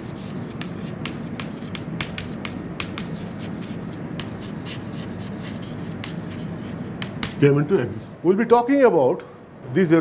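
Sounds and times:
chalk tapping on chalkboard: 0.0s - 7.5s.

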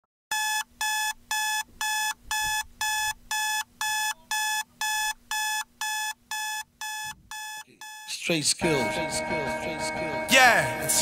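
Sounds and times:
electronic alarm beeping: 0.3s - 8.2s.

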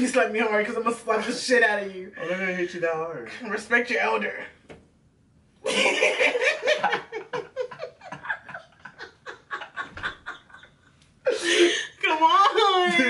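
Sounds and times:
woman and man laughing: 5.7s - 11.6s.

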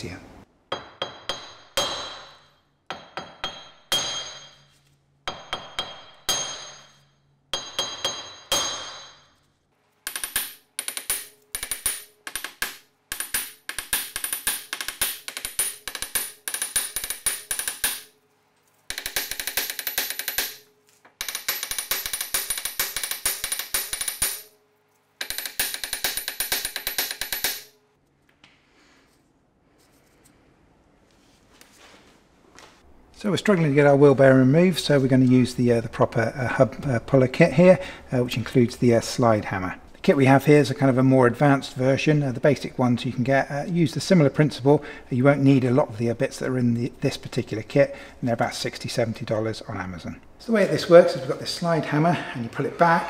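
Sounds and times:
hammer striking metal: 0.7s - 9.4s, 10.1s - 18.2s, 18.9s - 24.6s, 25.2s - 27.8s.

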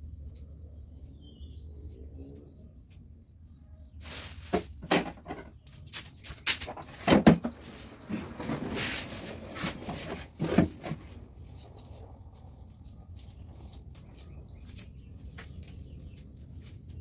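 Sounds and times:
rustle: 3.9s - 5.2s, 5.8s - 17.0s
knocks and clatters on wooden bench: 4.5s - 5.6s, 6.4s - 8.6s, 9.6s - 11.2s.

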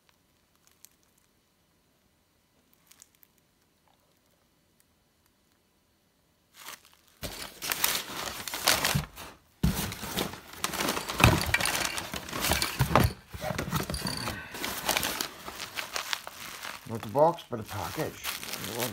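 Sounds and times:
plastic bag crinkling: 6.5s - 18.9s.

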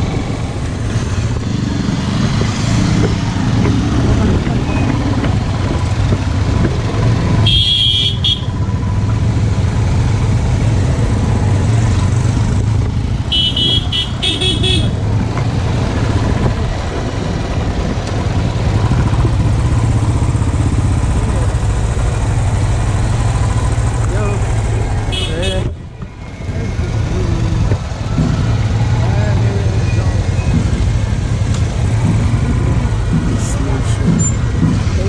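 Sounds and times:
wind rumbling: 0.0s - 7.5s, 14.6s - 35.0s
motorcycle engine: 0.0s - 35.0s
vehicle horn beeps: 7.4s - 8.5s.

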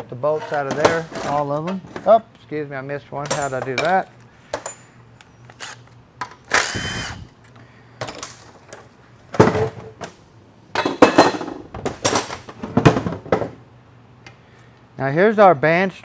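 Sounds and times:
metal clanks and clinks: 3.2s - 4.9s
power driver whirring: 5.5s - 5.9s, 6.5s - 7.4s.

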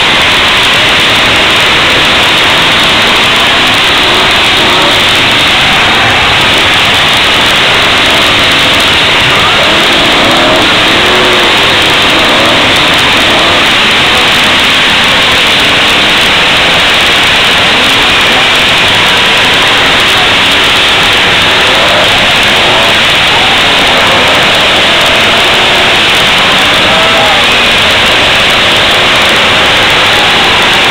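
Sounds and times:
car engines revving: 0.0s - 30.9s
crowd shouting: 0.0s - 30.9s.

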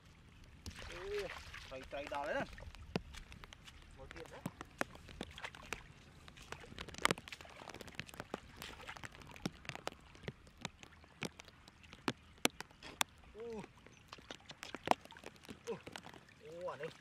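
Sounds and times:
muddy water running and splashing: 0.0s - 17.0s
sharp clicks: 13.8s - 16.3s.

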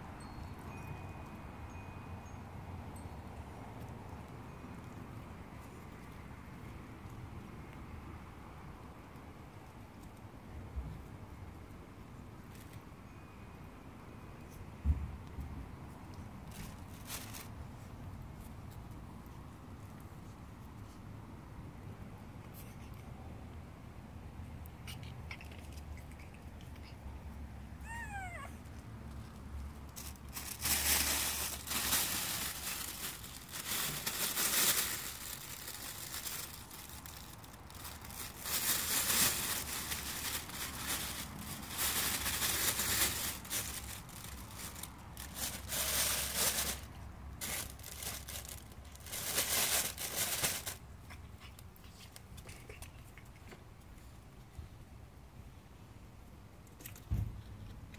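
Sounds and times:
puppy squeak: 27.8s - 28.6s
nylon tunnel crinkling: 29.9s - 50.8s.

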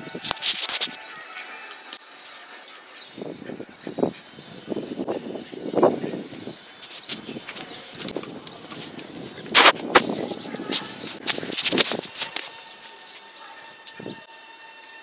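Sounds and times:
bird chirping: 0.0s - 15.0s.

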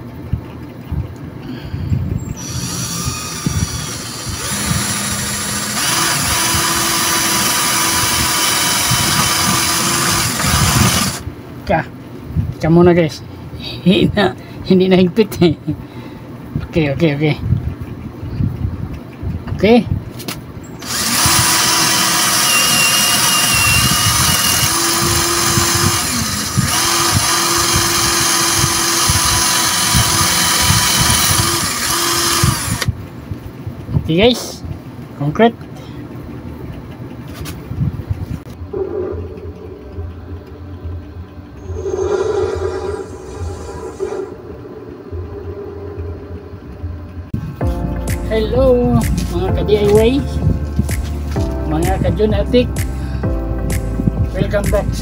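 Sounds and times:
hammer drill grinding into concrete: 2.4s - 11.2s, 20.8s - 32.9s.

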